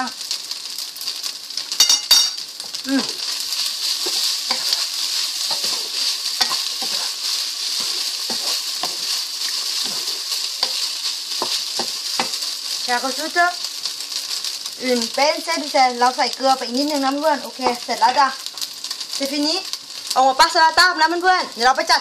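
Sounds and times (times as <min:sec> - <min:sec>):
noodles sizzling in a wok: 0:00.0 - 0:22.0
sharp clinks: 0:01.8 - 0:02.4.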